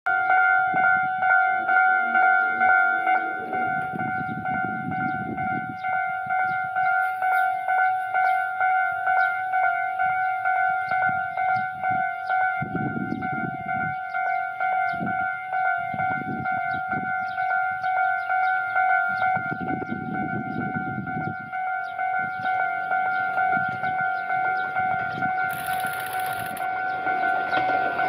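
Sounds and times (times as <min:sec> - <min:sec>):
low rumble of train: 0:00.1 - 0:25.5, 0:26.7 - 0:28.0
level crossing alarm ringing: 0:00.1 - 0:28.0.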